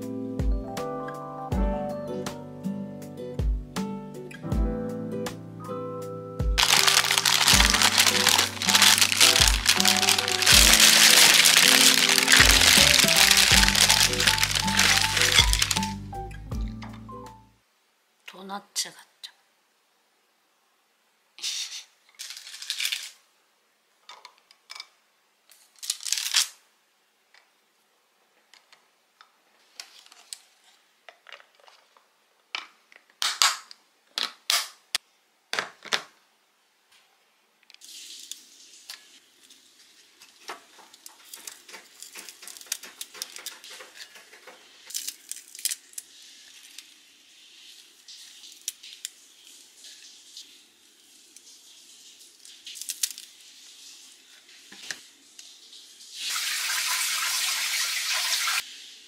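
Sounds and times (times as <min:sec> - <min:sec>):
pretzels tapping against glass: 0:06.6 - 0:15.9
spinach leaves rustling: 0:06.6 - 0:16.0, 0:25.7 - 0:26.6.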